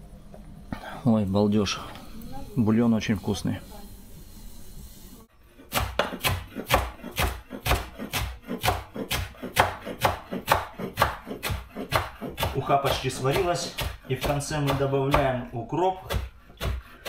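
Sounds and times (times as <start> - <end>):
knife chopping on wooden board: 5.7 - 15.4, 16.0 - 17.0.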